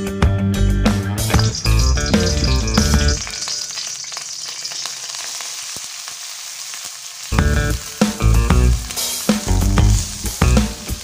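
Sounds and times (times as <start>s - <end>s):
background music: 0.0s - 3.8s, 7.3s - 11.0s
meat sizzling in hot oil: 1.2s - 11.0s.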